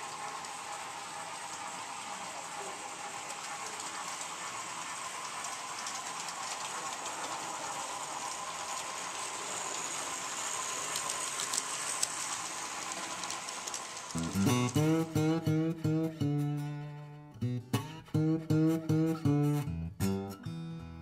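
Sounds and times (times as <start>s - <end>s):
model trains whirring on track: 0.0s - 16.4s
acoustic guitar music: 14.2s - 21.0s.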